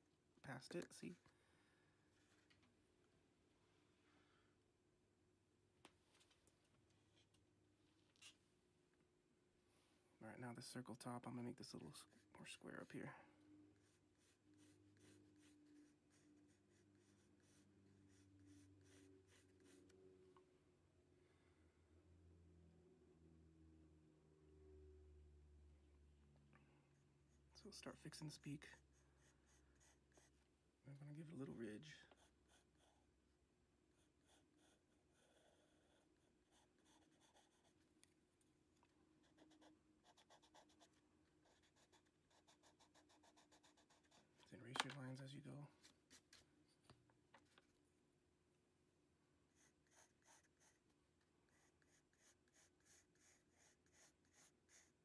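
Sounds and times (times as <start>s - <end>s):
pencil scratching on paper: 13.8s - 19.9s, 27.2s - 30.4s, 31.6s - 33.1s, 34.0s - 37.9s, 39.2s - 44.4s, 49.6s - 50.8s, 51.5s - 55.0s.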